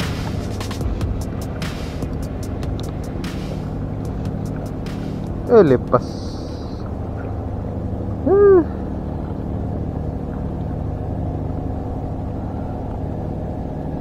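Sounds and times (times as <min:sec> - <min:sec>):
engine humming steadily: 0:00.0 - 0:14.0
short hooting call: 0:06.0 - 0:06.8.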